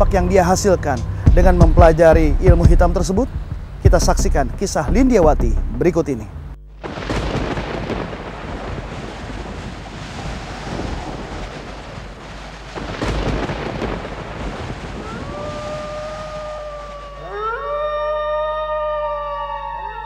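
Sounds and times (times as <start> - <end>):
rolling thunder: 6.8 - 17.3
thunderclap: 6.8 - 17.3
long howl: 14.9 - 20.0.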